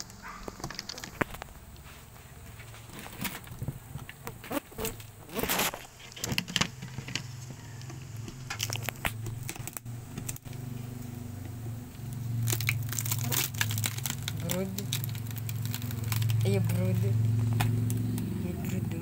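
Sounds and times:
sticky crackling and tearing: 0.0s - 1.8s, 2.8s - 11.2s, 11.9s - 18.8s
low steady hum: 0.0s - 19.0s.

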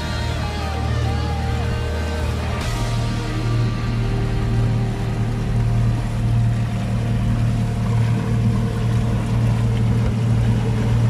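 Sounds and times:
boat engine humming: 0.0s - 11.0s
water wash: 0.0s - 11.0s
wind: 0.0s - 11.0s.

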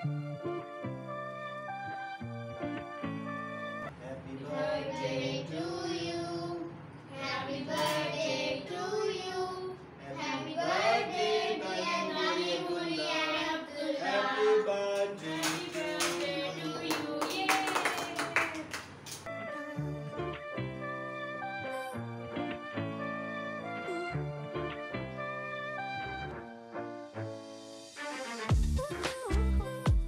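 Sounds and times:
children singing together: 4.3s - 14.7s
hand claps: 15.0s - 19.3s.

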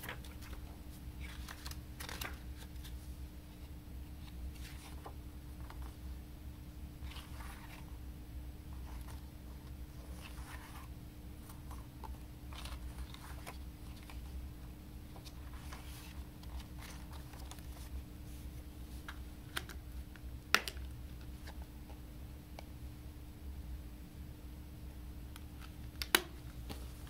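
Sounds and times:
paper pages rustling: 0.0s - 3.1s, 4.2s - 6.0s, 7.0s - 7.9s, 8.7s - 14.4s, 15.1s - 19.8s.

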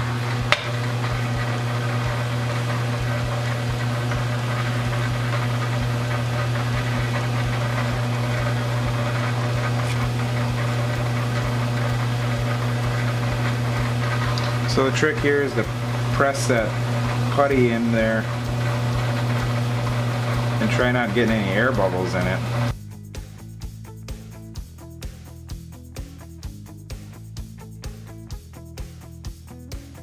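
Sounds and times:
lathe motor hum: 0.0s - 22.7s.

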